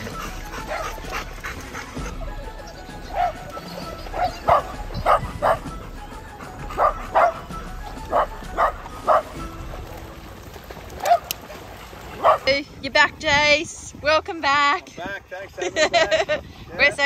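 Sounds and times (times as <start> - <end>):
music playing: 0.0 - 11.2
dog barking: 0.7 - 1.0, 3.1 - 3.4, 4.1 - 5.7, 6.8 - 7.5, 8.1 - 9.4, 11.0 - 11.3, 12.2 - 12.5.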